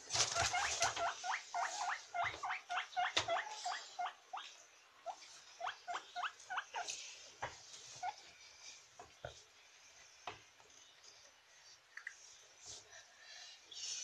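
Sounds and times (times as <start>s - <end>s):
guinea pig squeaking: 0.1s - 6.9s, 7.9s - 8.2s.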